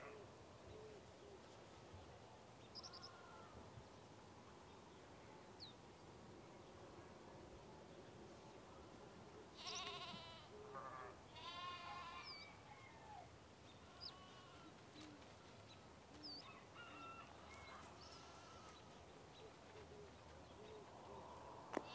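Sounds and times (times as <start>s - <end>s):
sheep bleating: 9.6s - 12.5s, 13.8s - 14.8s, 18.0s - 18.9s.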